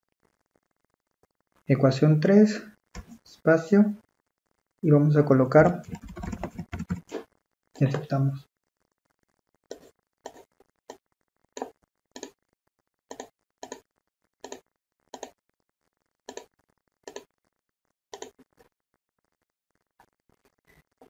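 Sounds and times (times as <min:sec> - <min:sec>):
computer mouse and keyboard clicks: 0:05.6 - 0:07.2, 0:11.6 - 0:12.4, 0:13.1 - 0:13.8, 0:14.4 - 0:14.6, 0:15.2 - 0:15.4, 0:16.3 - 0:17.3, 0:18.2 - 0:18.4.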